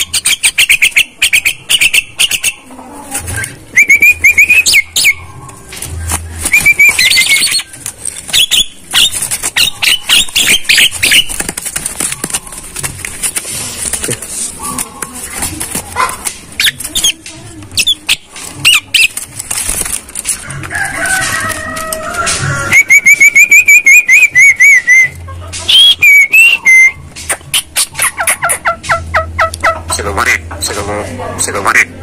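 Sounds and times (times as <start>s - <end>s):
myna whistles and harsh calls: 3.3s - 5.4s, 6.4s - 11.4s, 17.8s - 19.2s, 22.6s - 28.6s.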